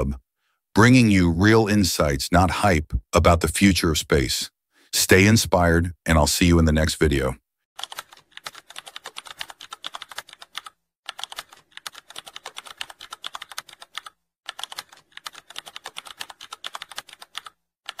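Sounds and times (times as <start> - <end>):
rapid keyboard typing: 7.8 - 18.0.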